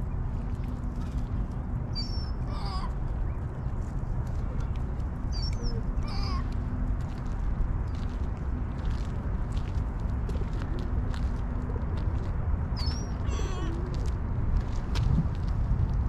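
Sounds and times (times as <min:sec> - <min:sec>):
steady low rumble: 0:00.0 - 0:16.0
birds calling: 0:01.9 - 0:03.7, 0:05.3 - 0:06.5, 0:12.8 - 0:13.9.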